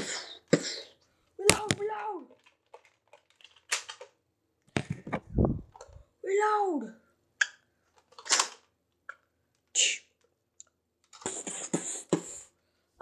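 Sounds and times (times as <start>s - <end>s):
plastic clicks: 1.5s - 6.0s.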